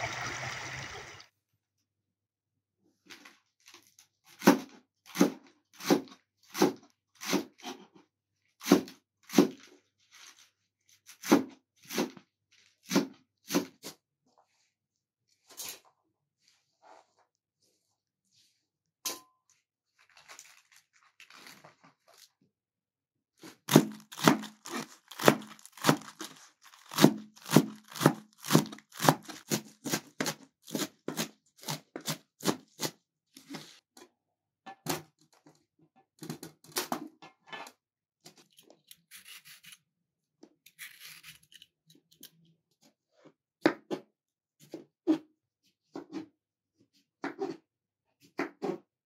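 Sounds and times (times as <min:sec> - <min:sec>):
knife cutting cucumber: 0:04.3 - 0:07.8, 0:26.9 - 0:33.0, 0:38.9 - 0:39.9, 0:40.7 - 0:42.3
knife chopping lettuce on board: 0:04.4 - 0:07.8, 0:08.6 - 0:09.6, 0:23.7 - 0:26.2, 0:26.9 - 0:33.0.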